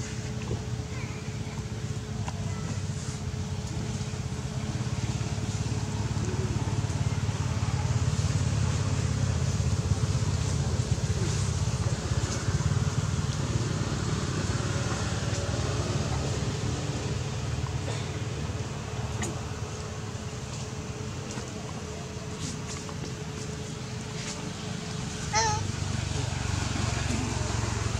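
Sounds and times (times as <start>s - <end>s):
low rumbling noise: 0.0s - 27.9s.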